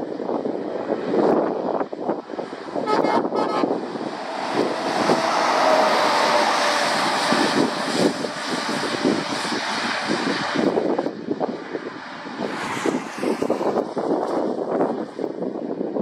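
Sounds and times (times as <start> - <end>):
lorry engine passing: 2.4 - 10.9, 11.9 - 14.6
horn toots: 2.8 - 3.8
tyres hissing on wet road: 3.6 - 10.7.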